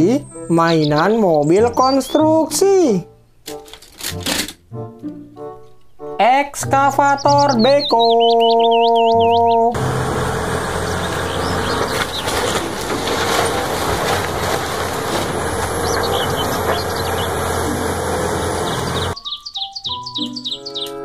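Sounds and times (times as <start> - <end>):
excavator diesel engine running: 8.6 - 19.2
wooden boards splintering and crashing: 9.8 - 19.2.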